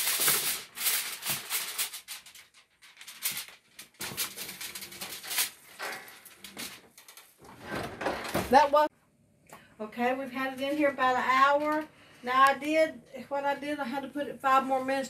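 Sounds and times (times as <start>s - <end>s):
aluminium foil crinkling: 0.0s - 7.4s.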